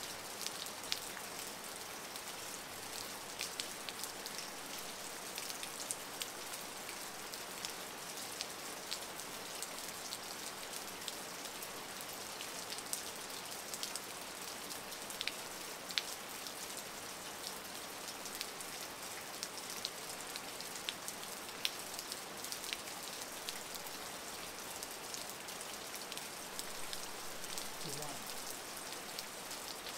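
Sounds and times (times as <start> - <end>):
rain hissing: 26.5 - 28.8
raindrop splashes: 26.6 - 28.6.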